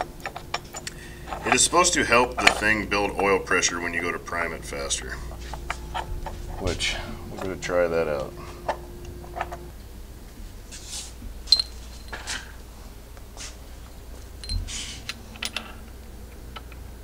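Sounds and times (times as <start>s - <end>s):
metal engine parts clinking: 14.4s - 15.8s.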